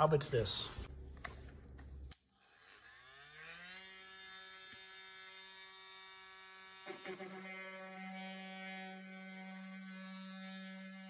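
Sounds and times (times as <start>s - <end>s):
oscillating multi-tool buzzing: 2.2s - 11.0s.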